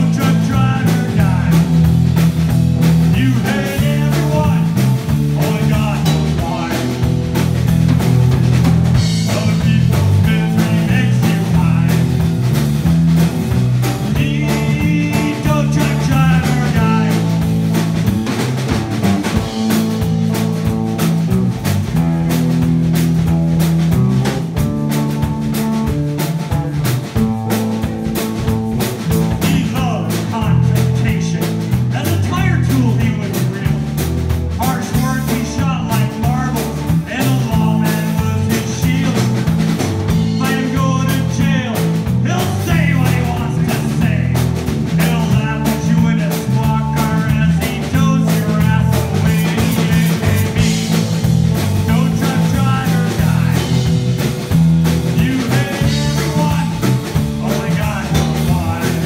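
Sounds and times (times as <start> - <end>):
person singing: 0.0 - 1.8, 3.1 - 7.2, 9.0 - 12.3, 13.9 - 17.5, 29.2 - 33.9, 34.6 - 39.5, 40.1 - 54.0, 55.0 - 59.0
rock band playing live: 0.0 - 59.0.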